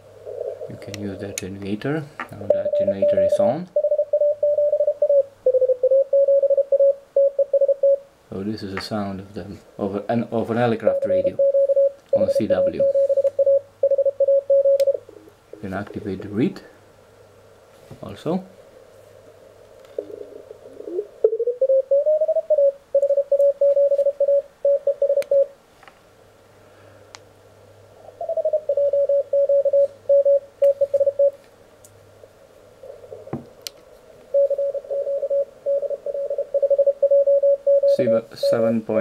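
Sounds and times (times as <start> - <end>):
faint low hum: 0.0 - 39.0
morse code tone: 2.5 - 8.0, 10.8 - 15.0, 21.3 - 25.5, 28.5 - 31.4, 34.3 - 39.0.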